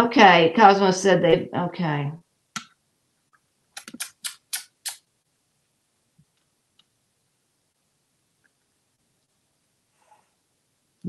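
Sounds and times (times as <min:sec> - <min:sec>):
sharp clicks: 0:03.8 - 0:05.0.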